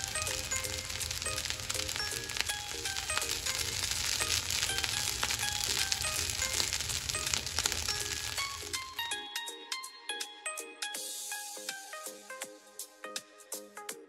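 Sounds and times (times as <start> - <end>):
rice sizzling in a frying pan: 0.0 - 9.0
plucked background music: 0.0 - 14.0.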